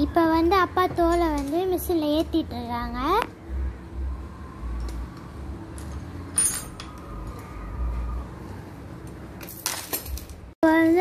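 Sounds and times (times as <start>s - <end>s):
metal chain clinking and rattling: 5.8s - 6.9s, 9.4s - 10.4s.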